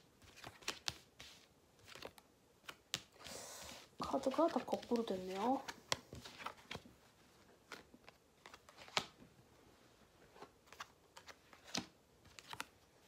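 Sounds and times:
cards tapping and flicking: 0.2 - 3.3, 7.7 - 9.2, 10.7 - 12.8.

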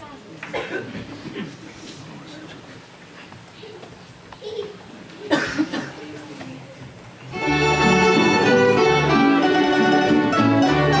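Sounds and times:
folk string band with violins: 7.3 - 11.0.

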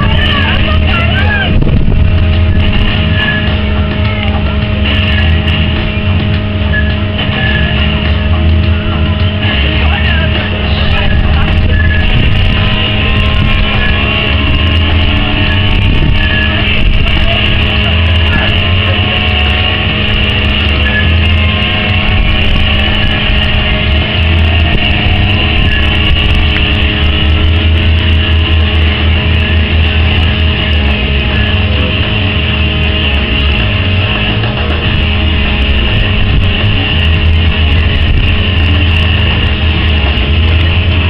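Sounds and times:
rush of air on microphone: 0.0 - 41.0
steady hum: 0.0 - 41.0
uneven low rumble: 0.0 - 41.0.

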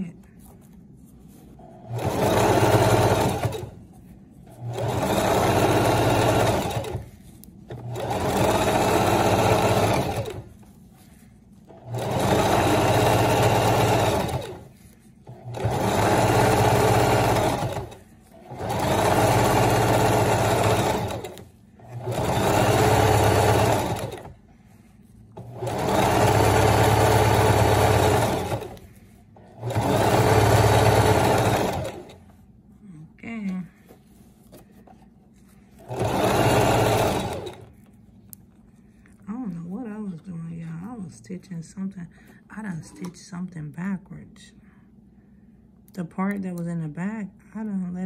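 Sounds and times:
sewing machine running: 1.6 - 3.8, 4.5 - 10.6, 11.7 - 24.4, 25.4 - 32.2, 35.8 - 37.7.

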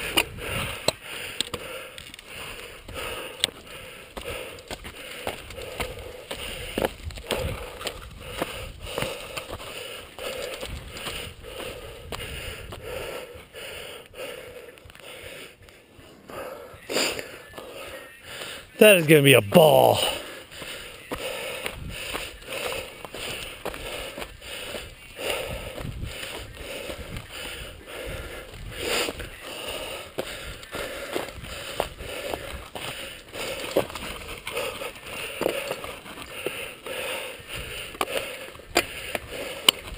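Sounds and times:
person breathing hard: 0.0 - 39.9
bike rattling on dirt trail: 30.1 - 36.8.

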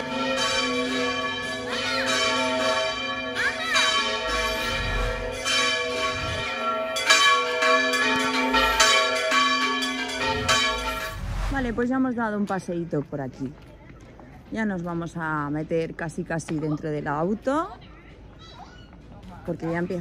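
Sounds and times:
church bells ringing: 0.0 - 11.2.

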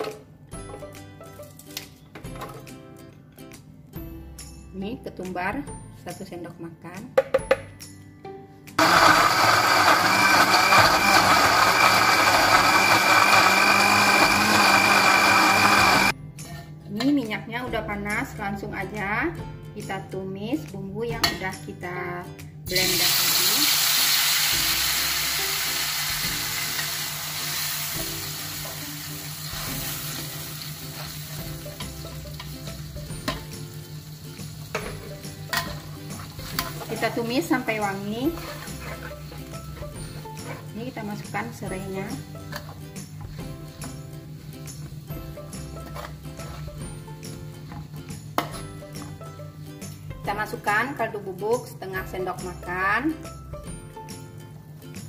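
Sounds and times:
blender grinding: 8.8 - 16.1
spice paste sizzling in oil: 22.8 - 41.1
metal spatula scraping wok: 34.7 - 37.0, 37.9 - 40.9, 45.8 - 46.8.

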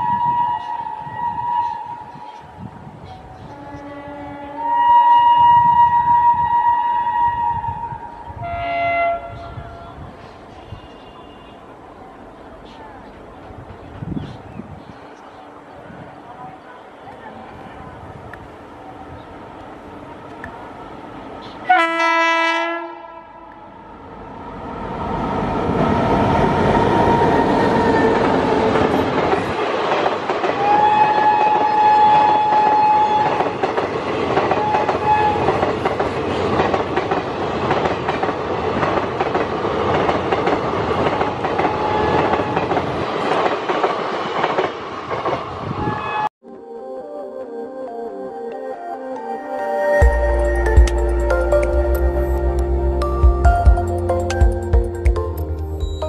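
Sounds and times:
locomotive horn: 0.0 - 2.2, 3.5 - 10.0, 21.6 - 23.8, 30.6 - 33.6, 34.5 - 35.6, 41.7 - 42.7, 45.8 - 46.3
train rushing past: 11.6 - 46.3.

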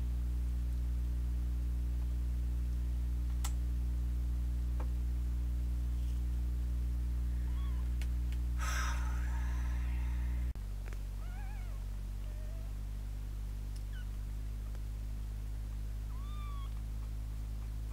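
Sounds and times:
low electrical hum: 0.0 - 17.9
faint clicks: 3.3 - 3.6
kitten crying: 7.4 - 7.9, 11.2 - 12.7, 13.9 - 14.1, 16.1 - 16.8.

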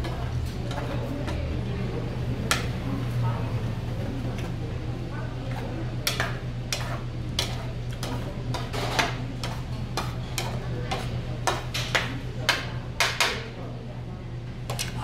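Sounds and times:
ladle scraping a pan: 6.1 - 11.7.

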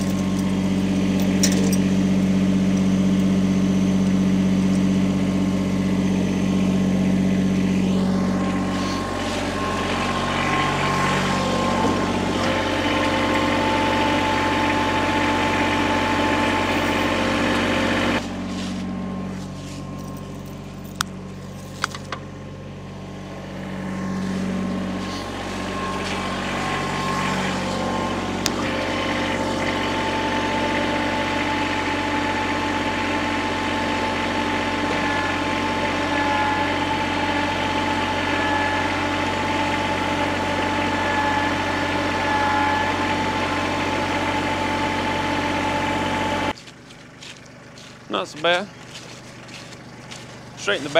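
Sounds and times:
vehicle engine idling: 0.0 - 50.9.

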